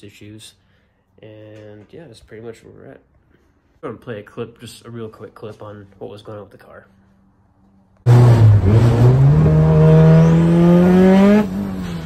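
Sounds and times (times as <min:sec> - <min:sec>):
car engine accelerating: 0:08.1 - 0:12.0.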